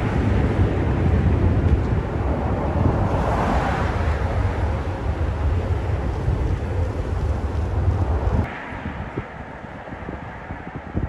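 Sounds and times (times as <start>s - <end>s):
cars driving past: 0.0s - 11.0s
wind buffeting microphone: 0.0s - 11.0s.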